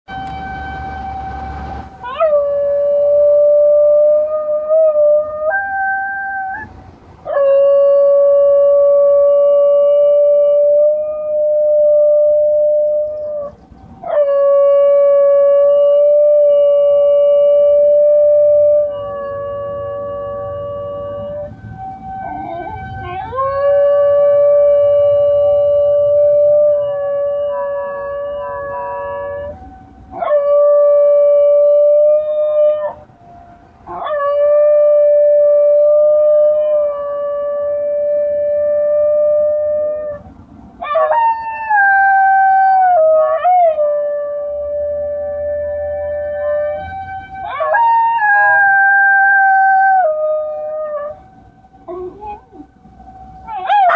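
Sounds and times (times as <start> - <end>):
dog howling: 22.2 - 29.6, 51.9 - 52.7, 53.5 - 53.9.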